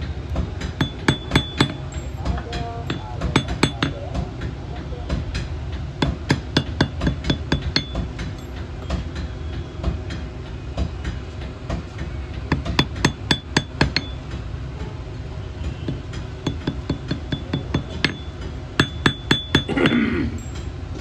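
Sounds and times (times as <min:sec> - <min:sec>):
hammer striking metal on anvil: 0:00.6 - 0:04.3, 0:05.3 - 0:10.3, 0:12.5 - 0:14.4, 0:15.6 - 0:20.7.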